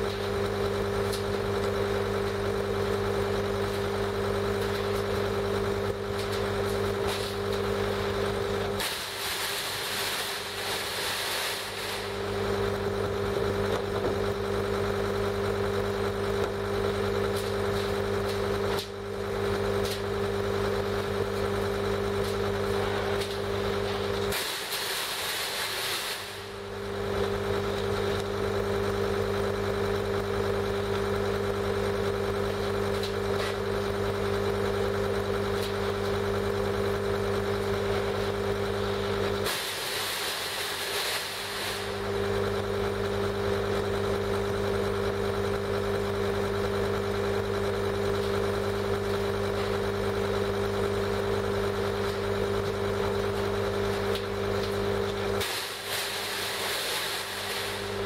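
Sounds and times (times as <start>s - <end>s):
diesel engine idling: 0.0s - 24.3s, 26.2s - 58.0s
hiss: 8.8s - 12.2s, 24.3s - 26.6s, 39.4s - 42.0s, 55.4s - 58.0s.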